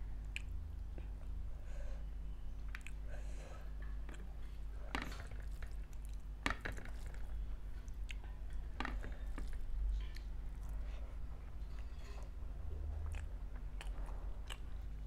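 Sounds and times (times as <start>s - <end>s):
low steady hum: 0.0s - 15.0s
chewing: 2.7s - 3.0s, 3.8s - 15.0s.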